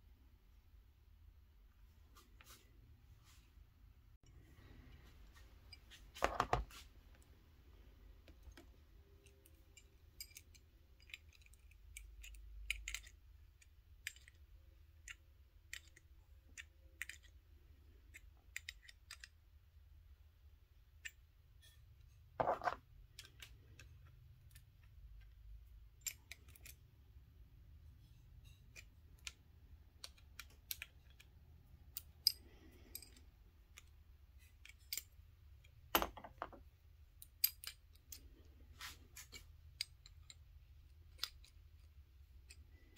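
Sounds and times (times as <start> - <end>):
small metal clicks and ticks: 8.3 - 19.4, 23.0 - 26.9, 28.1 - 35.8, 37.2 - 38.5, 39.2 - 42.9.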